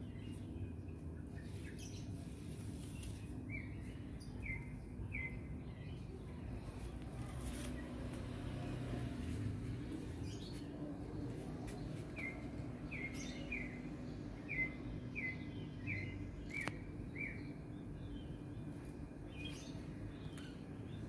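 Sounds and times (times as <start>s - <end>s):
low background hum: 0.0s - 21.0s
bird chirping: 2.8s - 8.9s, 9.6s - 18.7s.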